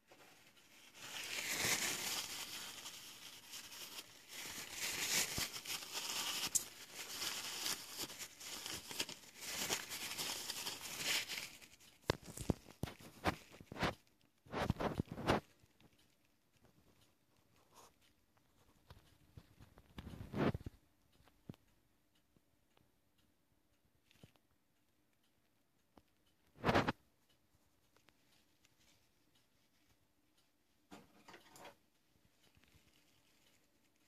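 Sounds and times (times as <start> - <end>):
paper towel rustling and scraping: 0.1 - 15.4.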